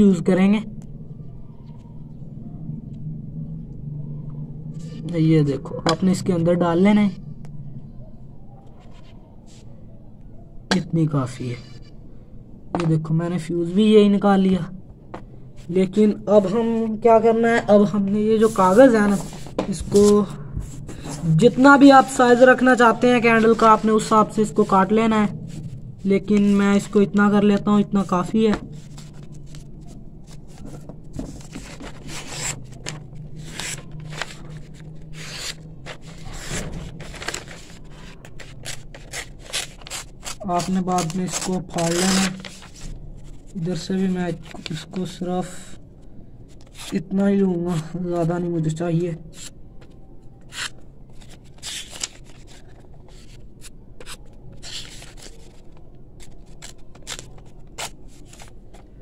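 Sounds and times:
paper rustling and scraping: 18.3s - 27.7s, 28.4s - 45.2s, 46.5s - 47.9s, 49.3s - 59.0s.

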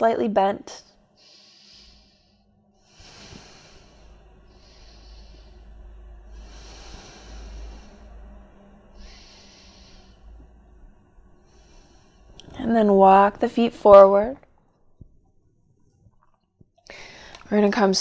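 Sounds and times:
low steady hum: 0.0s - 18.0s
woman breathing deeply: 1.0s - 12.6s, 16.8s - 17.5s.

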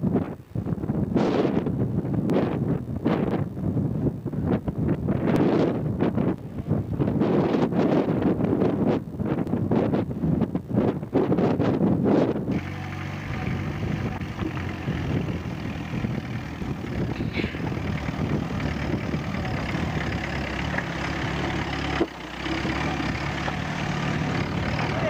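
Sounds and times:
vehicle engine running: 12.2s - 25.0s.

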